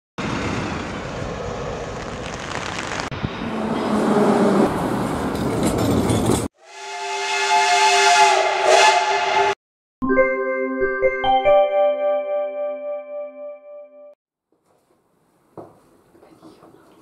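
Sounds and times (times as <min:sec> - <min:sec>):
jet engine noise: 0:00.2 - 0:03.9
steam locomotive whistle: 0:06.6 - 0:09.6
music: 0:10.0 - 0:14.2.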